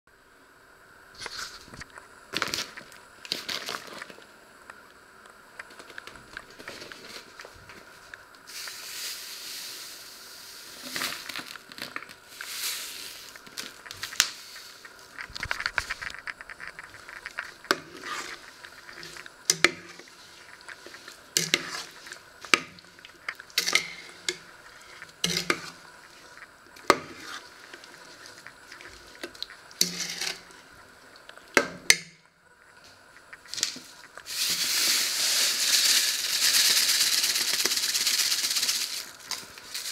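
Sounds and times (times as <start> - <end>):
soft hissing rush: 0.2 - 31.6, 32.3 - 39.9
metal spoon scraping a pot: 16.5 - 22.6, 23.3 - 28.5, 29.8 - 30.5.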